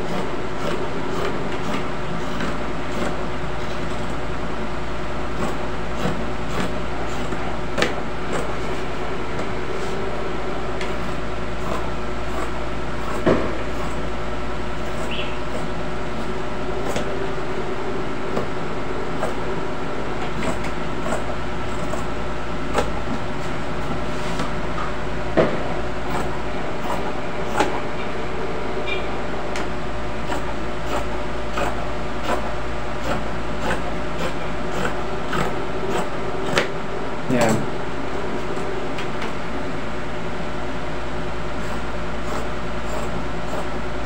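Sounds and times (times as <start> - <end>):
steady mechanical hum: 0.0 - 44.0
scissors snipping cloth: 30.3 - 36.7.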